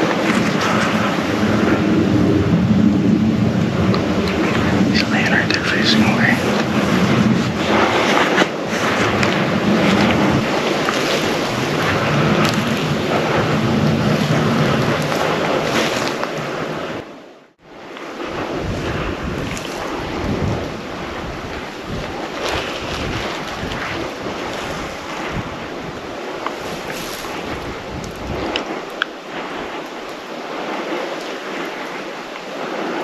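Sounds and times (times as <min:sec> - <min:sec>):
wind buffeting microphone: 0:00.0 - 0:33.0.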